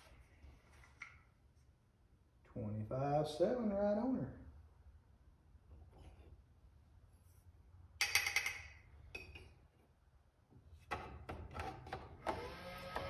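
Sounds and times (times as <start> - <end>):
dispenser motor whirring: 12.2 - 13.0.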